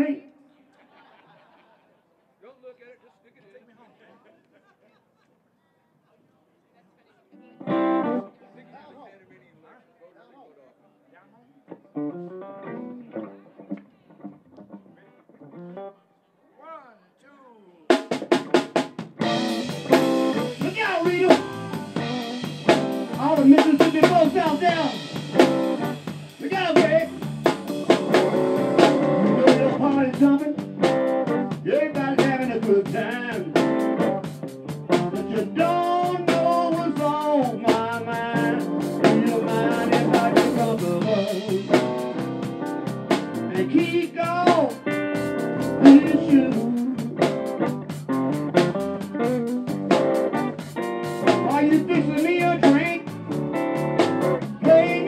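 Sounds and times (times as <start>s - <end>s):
bass guitar: 7.6s - 8.3s, 11.8s - 16.0s, 18.1s - 55.0s
electric guitar with bending notes: 7.6s - 8.4s, 11.7s - 16.0s, 18.1s - 55.0s
drum kit beat: 17.9s - 55.0s.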